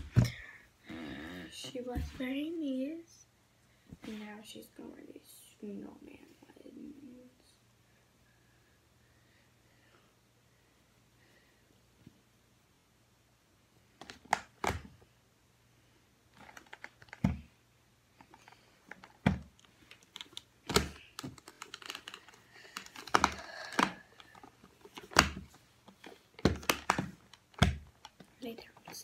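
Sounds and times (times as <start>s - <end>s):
plastic doll clicks and taps: 18.9s - 28.3s.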